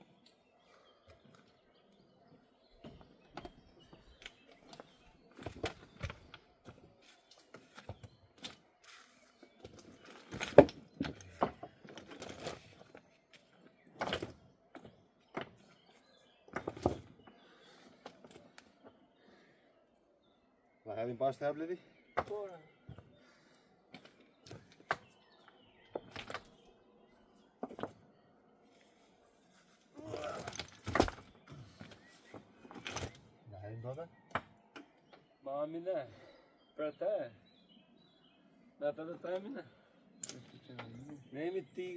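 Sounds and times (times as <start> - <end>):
stones knocking and scraping: 2.8 - 8.6, 9.5 - 17.4, 22.2 - 23.1, 23.9 - 26.7, 27.5 - 28.2, 29.6 - 33.4, 40.2 - 41.1.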